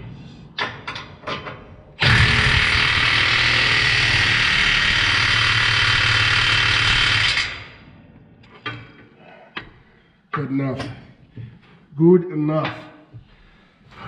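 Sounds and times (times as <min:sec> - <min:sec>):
impact wrench hammering on bolt: 0:02.0 - 0:07.6.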